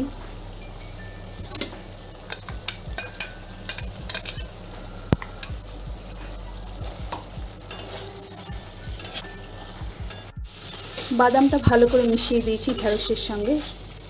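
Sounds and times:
frying sizzle: 0.0s - 14.0s
spatula scraping metal pan: 7.1s - 13.8s.

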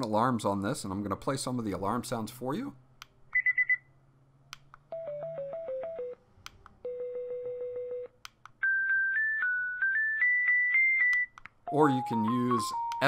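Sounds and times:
alarm clock high beeps: 3.4s - 3.9s, 8.6s - 13.0s
sharp clicks: 4.5s - 4.9s
electronic alarm tune: 8.6s - 13.0s.

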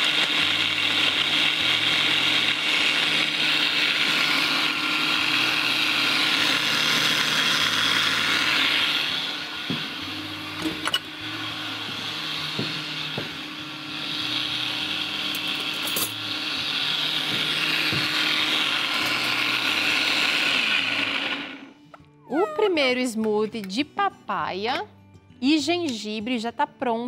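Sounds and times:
blender running: 0.0s - 21.8s.

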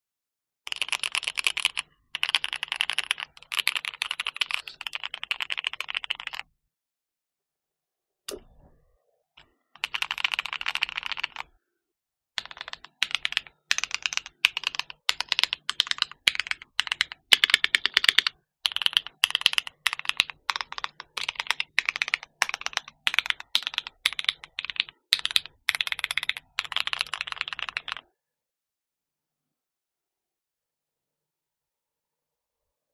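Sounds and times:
mechanical keyboard typing: 0.7s - 6.4s, 9.8s - 11.4s, 12.4s - 28.0s.

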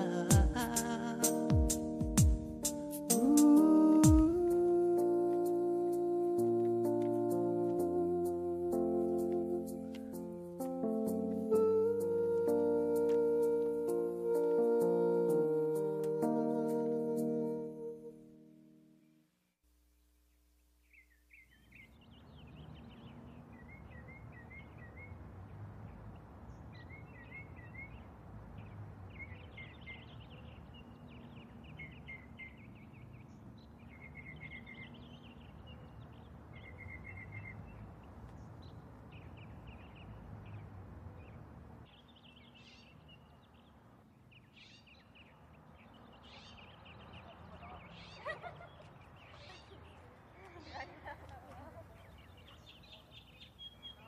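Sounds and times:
small birds chirping: 20.0s - 54.0s.

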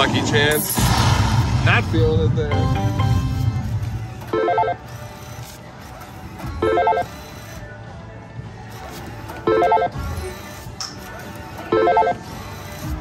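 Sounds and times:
low machine hum: 0.9s - 5.8s
slot machine bell ringing: 2.5s - 3.6s, 4.3s - 4.8s, 6.6s - 7.1s, 9.4s - 10.0s, 11.7s - 12.2s.

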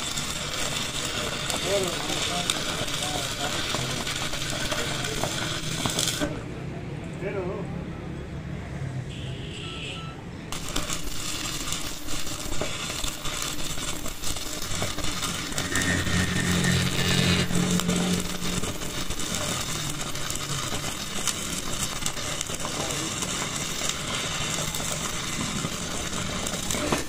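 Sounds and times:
arc welding crackling: 0.0s - 6.5s, 10.5s - 27.0s
low hum: 15.2s - 19.3s.

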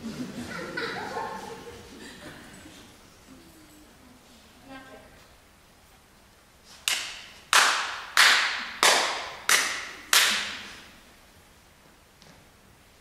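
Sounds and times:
loud sharp bangs in a hall: 6.9s - 10.8s.

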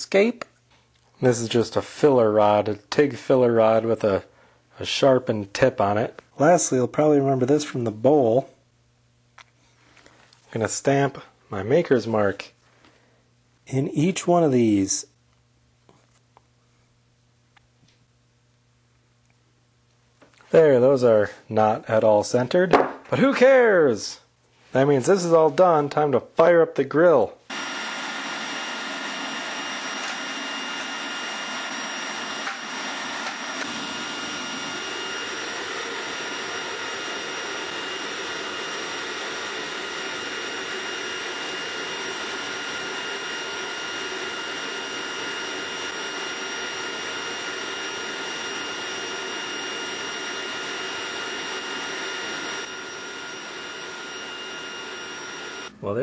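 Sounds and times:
furnace burner rushing hiss: 27.5s - 55.7s.

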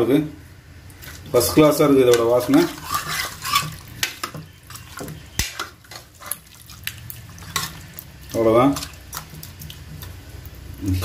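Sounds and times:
spoon clinking and scraping pot: 2.0s - 6.4s, 7.4s - 7.9s.

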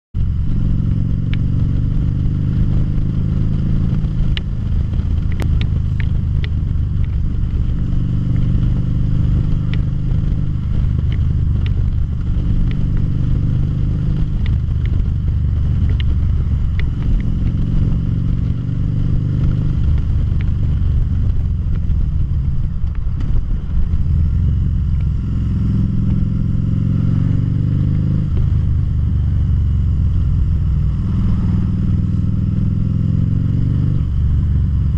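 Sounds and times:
motorcycle engine running: 0.2s - 34.9s
sharp ticks: 1.3s - 1.5s, 4.2s - 7.7s, 9.7s - 13.0s, 14.2s - 22.0s.

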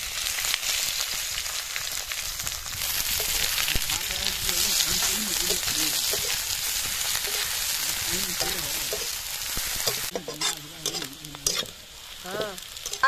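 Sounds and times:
onions sizzling in a pan: 0.0s - 13.0s
metal spatula scraping pan: 8.2s - 13.0s.

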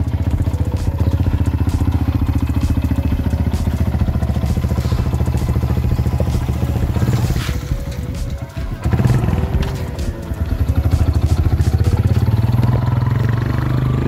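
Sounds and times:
motorcycle engine idling: 0.0s - 14.0s.

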